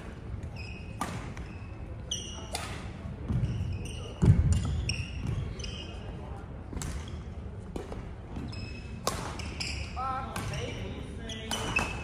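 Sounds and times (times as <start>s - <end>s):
sneakers squeaking: 0.0s - 12.0s
racket hitting shuttlecock: 1.0s - 1.5s, 2.5s - 2.9s, 9.0s - 9.7s, 11.5s - 12.0s.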